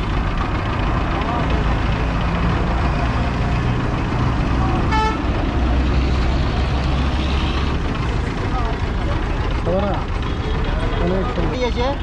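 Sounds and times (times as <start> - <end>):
road traffic rumble: 0.0 - 12.0
car horn toot: 4.9 - 5.2.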